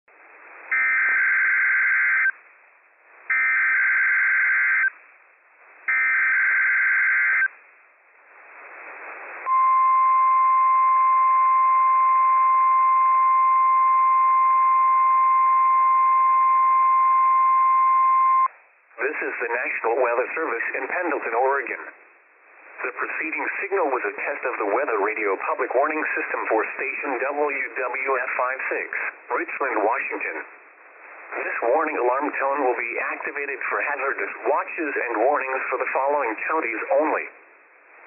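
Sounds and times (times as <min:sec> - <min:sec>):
radio hiss: 0:08.2 - 0:09.6, 0:18.9 - 0:38.0.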